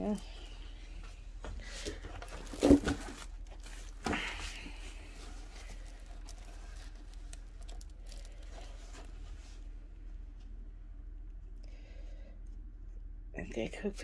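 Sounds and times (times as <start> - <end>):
plastic film crinkling: 1.8 - 9.7.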